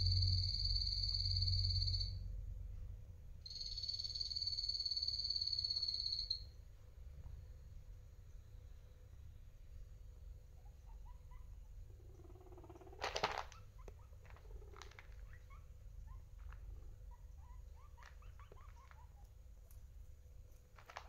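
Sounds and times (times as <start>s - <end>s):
low pulsing rumble: 0.0s - 3.1s
guinea pigs squeaking: 10.5s - 19.9s
clicks and rustling: 13.0s - 15.3s, 20.5s - 21.0s.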